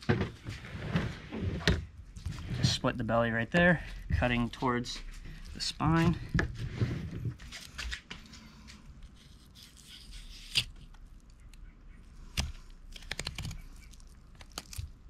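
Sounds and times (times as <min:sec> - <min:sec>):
knife cutting fish flesh: 0:09.1 - 0:11.0.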